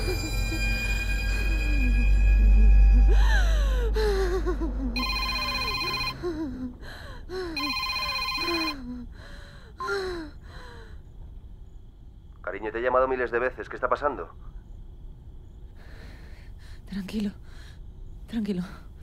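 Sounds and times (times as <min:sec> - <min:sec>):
deep musical drone: 0:00.0 - 0:06.5
telephone ringing: 0:05.0 - 0:06.2, 0:07.6 - 0:08.8
person gasping breaths: 0:06.2 - 0:07.6.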